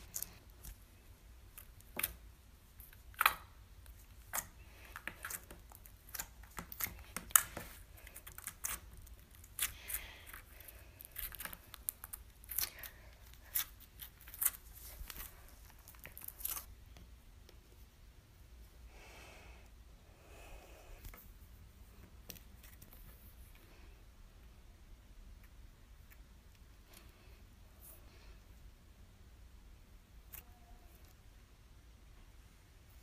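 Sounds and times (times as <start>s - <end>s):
slime popping and crackling: 2.8s - 16.7s.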